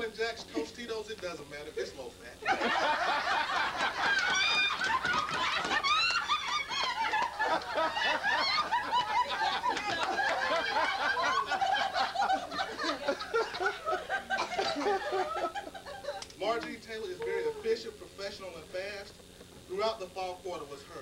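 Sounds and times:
group of people laughing: 0:02.4 - 0:16.3.

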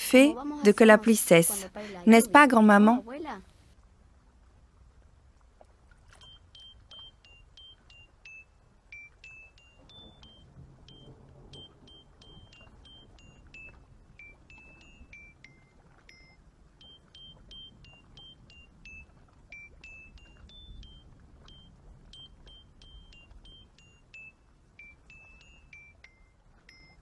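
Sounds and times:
light melody of short high notes: 0:06.2 - 0:27.0
faint low rumble: 0:08.6 - 0:27.0.

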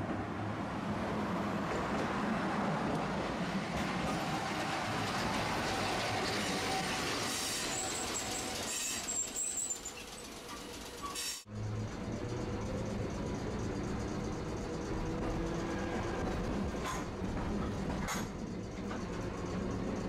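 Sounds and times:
streetcar wheels rumbling on rails: 0:00.0 - 0:20.0
thin high wheel squeal: 0:06.2 - 0:11.5.

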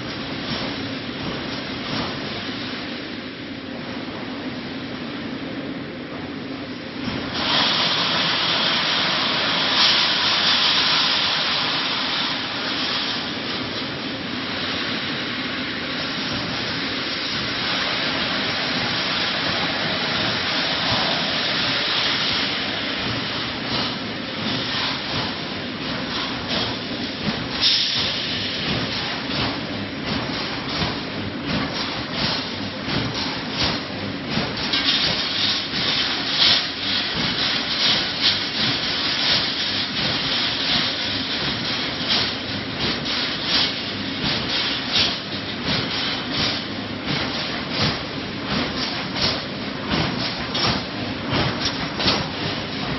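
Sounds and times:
welding machine hissing: 0:07.2 - 0:48.4
clatter of sharp clicks and knocks: 0:23.0 - 0:52.9.

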